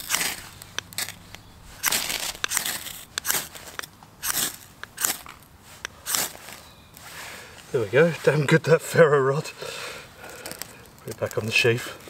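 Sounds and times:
knife rasping on ferro rod: 0:01.8 - 0:05.2, 0:06.0 - 0:06.4.

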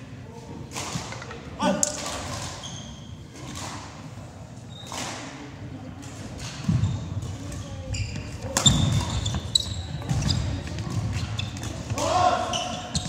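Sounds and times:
shoes squeaking on wooden floor: 0:06.7 - 0:13.0.

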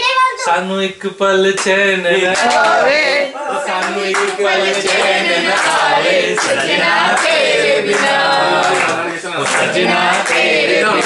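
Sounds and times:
hands clapping in rhythm: 0:01.5 - 0:03.0, 0:03.7 - 0:11.0
men singing together: 0:01.9 - 0:11.0.

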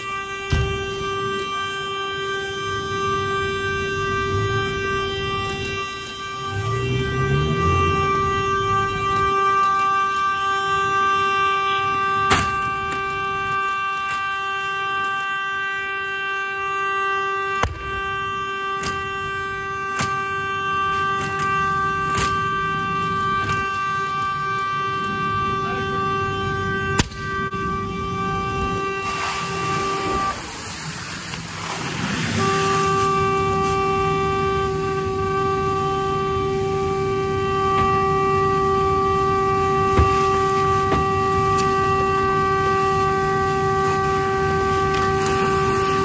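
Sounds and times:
car horn steady note: 0:00.0 - 0:46.0
fire popping: 0:26.9 - 0:46.0
water hissing on flames: 0:28.5 - 0:46.0.

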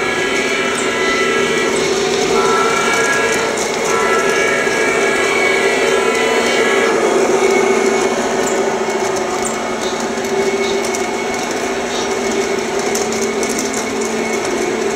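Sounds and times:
wheels clicking on rails: 0:00.0 - 0:14.9
whir of electric motors: 0:00.0 - 0:14.9.

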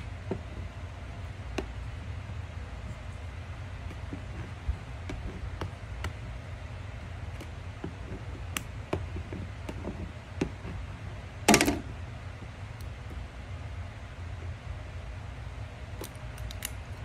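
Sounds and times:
steady low hum: 0:00.0 - 0:17.0
tape peeling crackle: 0:16.0 - 0:17.0.

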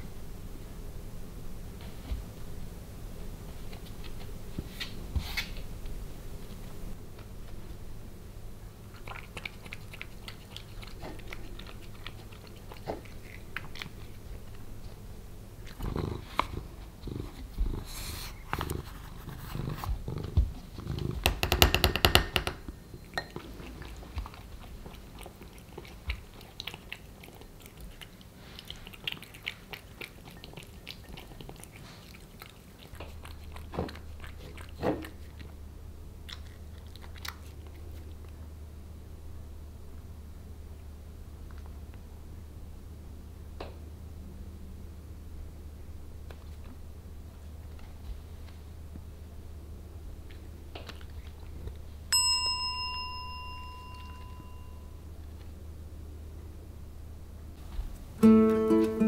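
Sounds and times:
cat chewing and licking: 0:03.4 - 0:05.1, 0:08.6 - 0:21.4, 0:22.7 - 0:38.5, 0:50.0 - 0:52.1
sharp knocks: 0:21.2 - 0:22.6.

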